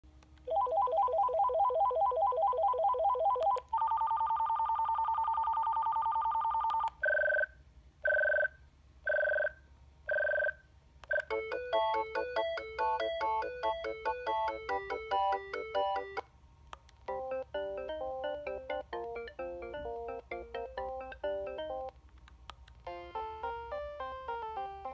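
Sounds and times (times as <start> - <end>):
phone ringtones: 0.5 - 7.5, 9.1 - 16.2, 17.1 - 21.9
clicks between tones: 14.9 - 22.9.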